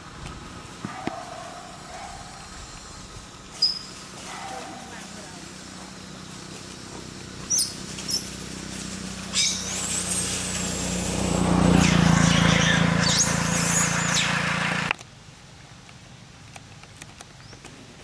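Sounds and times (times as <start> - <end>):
low engine hum: 0.0 - 18.0
short high squeaks: 9.2 - 14.6.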